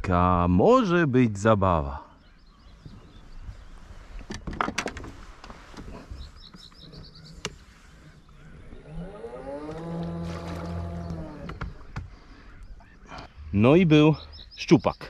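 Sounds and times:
bird chirps: 2.0 - 4.1, 5.9 - 9.6, 12.2 - 15.0.

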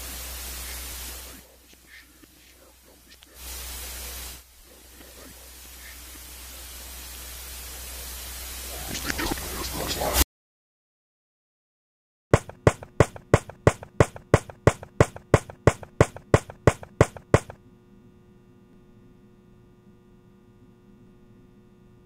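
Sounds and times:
steady hum with fixed tones: 0.0 - 10.2, 12.4 - 22.0
sharp percussive strikes: 12.4 - 17.6.

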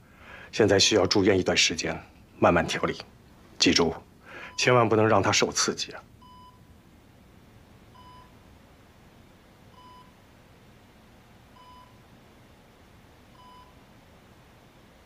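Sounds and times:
patient monitor beeping: 4.4 - 4.9, 6.2 - 6.7, 7.9 - 8.4, 9.7 - 10.2, 11.6 - 12.0, 13.3 - 13.8.

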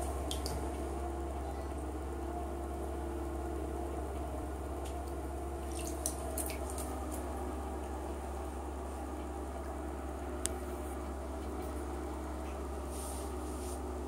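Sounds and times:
steady low hum: 0.0 - 14.0
bath bomb splashy clicks: 0.2 - 0.6.

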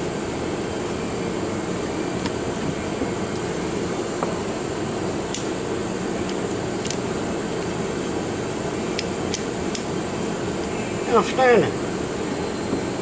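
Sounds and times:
steady mechanical hum: 0.0 - 13.0
revolver metallic clicks: 8.9 - 9.9.

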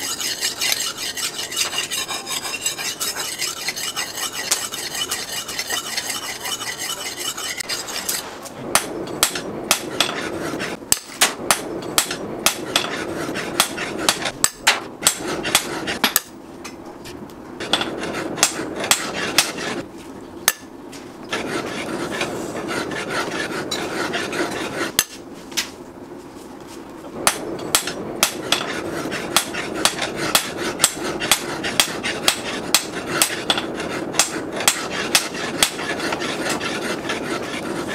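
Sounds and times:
blade scraping on sharpening stone: 0.0 - 8.2.

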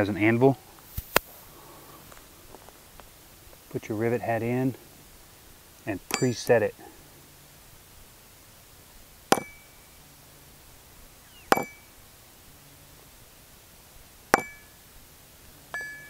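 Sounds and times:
hammer striking metal rivet: 6.1 - 6.5, 9.3 - 9.8, 11.5 - 11.9, 14.3 - 14.8, 15.7 - 16.0.

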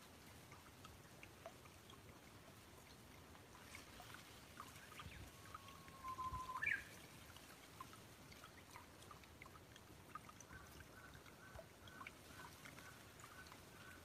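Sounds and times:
faint trickling water: 0.0 - 14.0
bird whistling: 5.8 - 6.9.

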